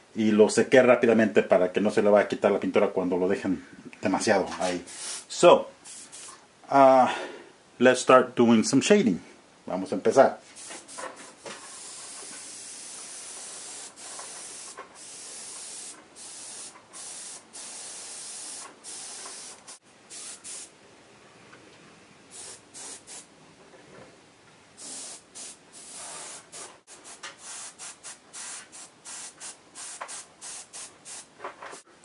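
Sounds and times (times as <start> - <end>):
airbrush spraying hiss: 4.6 - 6.4, 10.5 - 20.7, 22.3 - 23.3, 24.8 - 31.9.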